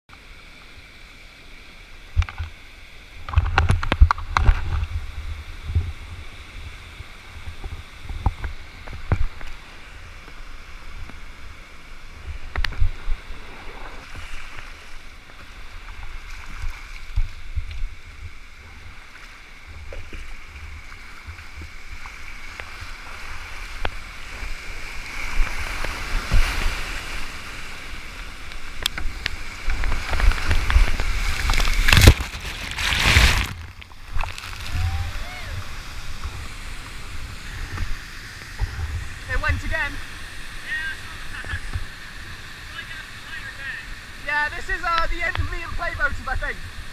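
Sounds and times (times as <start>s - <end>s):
whitewater rushing: 2.8s - 46.9s
paddle splashing water: 12.2s - 46.9s.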